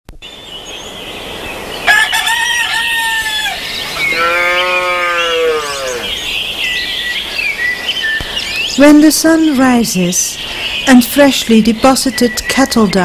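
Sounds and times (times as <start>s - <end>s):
small birds chirping: 0.1s - 13.0s
rooster crowing: 1.8s - 6.1s
cow mooing: 4.0s - 6.2s.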